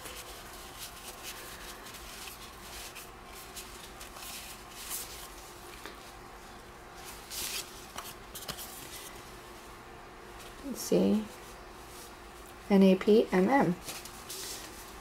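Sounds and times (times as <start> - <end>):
cards swishing and rustling: 0.0 - 6.2, 7.0 - 9.3, 13.8 - 15.0.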